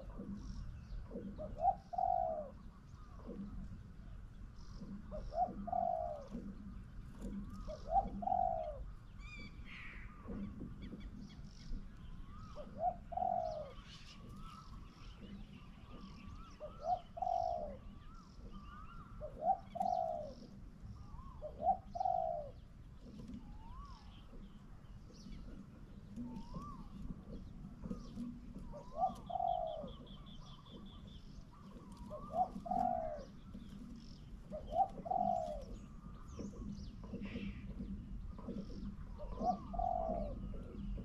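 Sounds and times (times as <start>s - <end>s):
dove cooing: 0.0s - 41.0s
small birds chirping: 0.0s - 41.0s.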